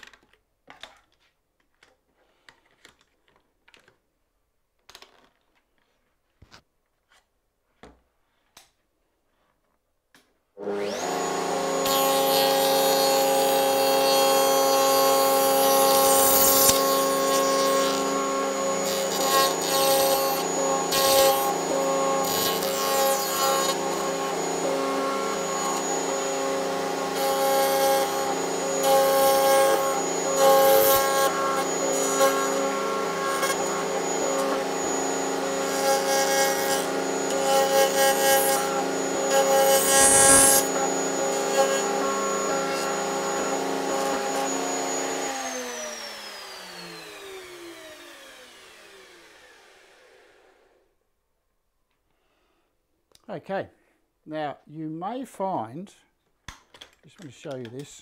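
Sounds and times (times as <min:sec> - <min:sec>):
router bit cutting wood: 0:10.6 - 0:50.8
router whining: 0:10.6 - 0:50.9.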